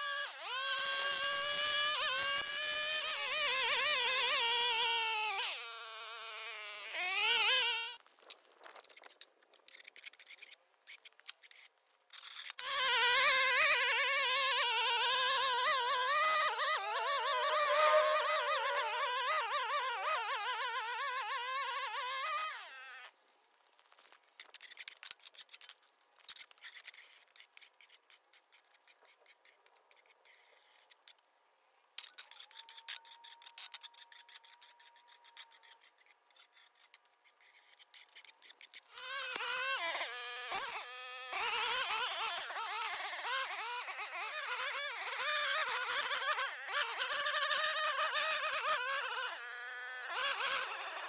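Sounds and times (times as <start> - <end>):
small engine running: 0.0 - 8.0, 12.6 - 23.1, 38.9 - 51.0
string trimmer starting: 38.9 - 51.0.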